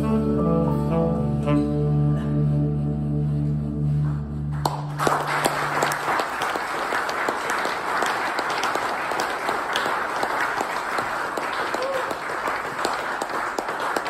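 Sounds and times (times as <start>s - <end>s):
audience applause: 4.5s - 14.0s.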